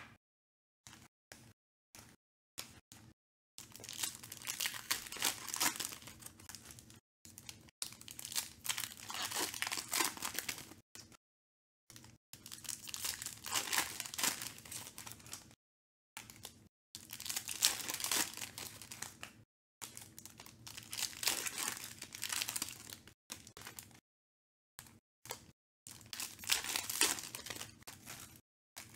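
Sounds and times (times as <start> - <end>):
foil wrappers crinkling and tearing: 3.6 - 10.8, 12.0 - 15.5, 16.3 - 24.0, 25.9 - 28.9.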